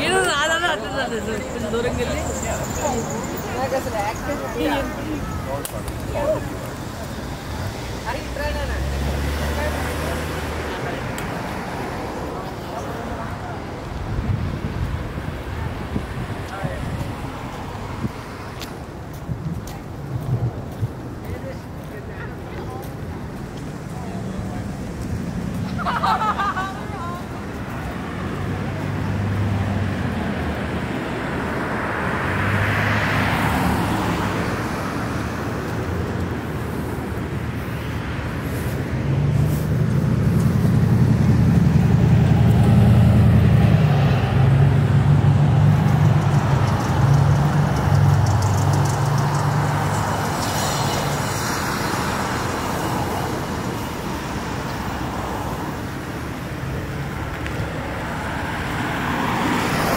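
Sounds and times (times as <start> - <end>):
vehicle engine hum: 19.7 - 59.9.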